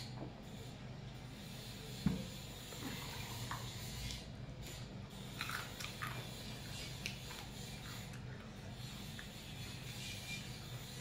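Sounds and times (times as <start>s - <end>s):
steady low hum: 0.0s - 11.0s
person chewing with crunches: 5.2s - 9.9s.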